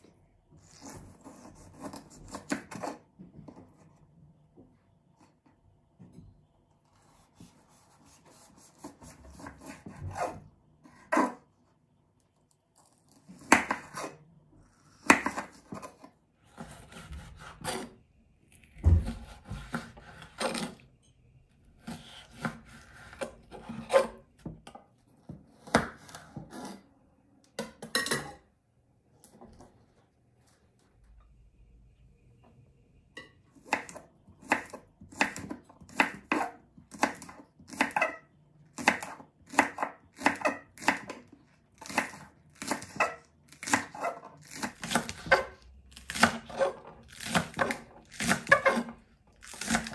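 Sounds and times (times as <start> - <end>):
knife scraping: 0.6 - 3.0, 6.8 - 11.6, 21.8 - 24.3.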